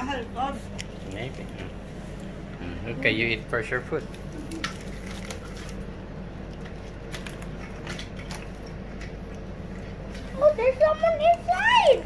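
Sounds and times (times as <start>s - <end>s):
paper wrappers rustling: 3.9s - 5.9s.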